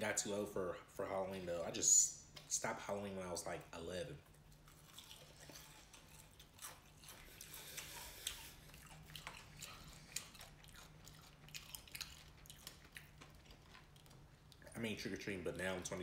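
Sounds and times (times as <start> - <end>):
chewing and crunching food: 3.2 - 16.0.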